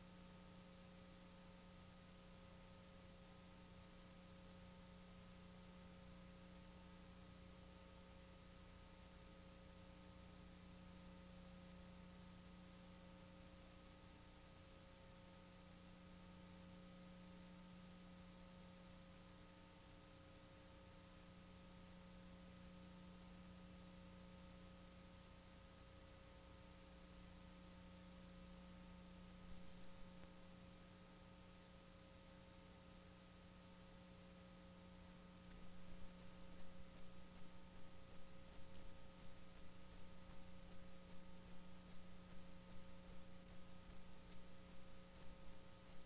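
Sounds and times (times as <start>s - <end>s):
faint steady hiss: 0.0s - 46.0s
low electrical hum: 0.0s - 46.0s
faint steady tones: 15.4s - 46.0s.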